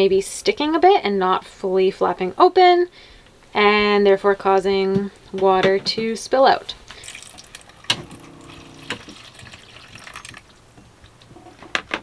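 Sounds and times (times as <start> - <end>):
water running into plastic container: 6.9 - 10.6.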